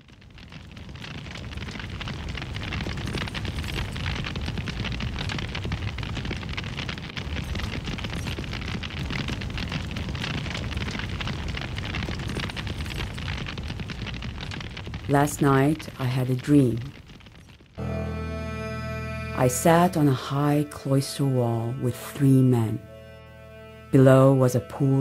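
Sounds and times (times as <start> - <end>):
fire crackling: 0.0 - 25.0.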